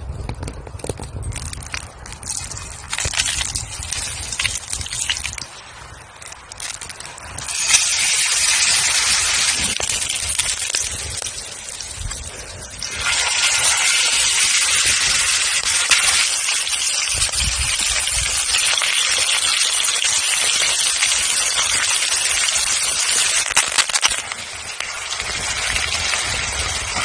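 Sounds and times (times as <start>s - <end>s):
wood fire crackling: 0.0s - 27.0s
steak sizzling in oil: 7.4s - 27.0s.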